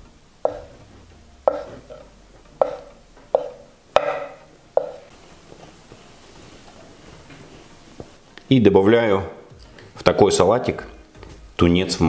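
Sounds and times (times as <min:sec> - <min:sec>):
knife knocking on wooden board: 0:00.5 - 0:00.8, 0:01.5 - 0:05.1.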